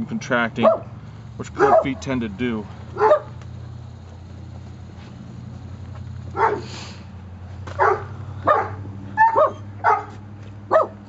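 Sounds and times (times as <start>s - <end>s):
steady low hum: 0.0s - 11.0s
dog barking: 0.6s - 1.0s, 1.6s - 2.0s, 2.9s - 3.4s, 6.3s - 6.8s, 7.8s - 11.0s.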